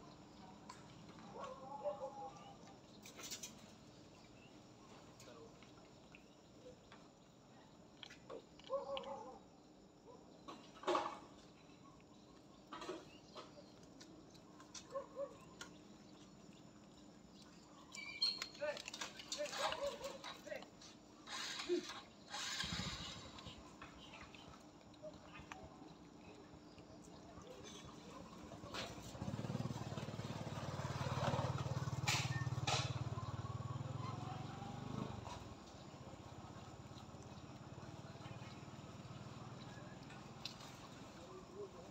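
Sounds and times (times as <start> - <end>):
small engine rumbling: 10.4 - 41.9.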